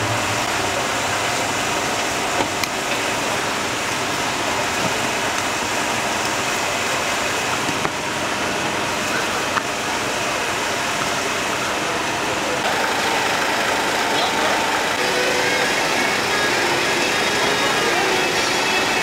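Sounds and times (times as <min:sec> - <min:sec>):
steady background noise: 0:00.0 - 0:19.0
crowd talking: 0:08.9 - 0:19.0.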